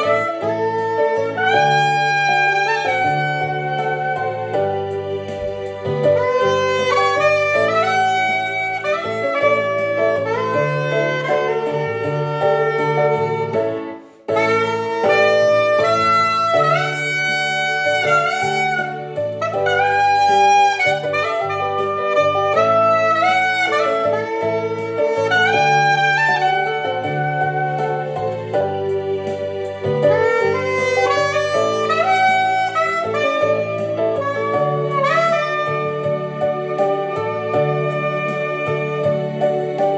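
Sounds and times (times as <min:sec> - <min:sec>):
backing track with bass line: 0:00.0 - 0:39.9
soprano saxophone melody: 0:00.0 - 0:39.9.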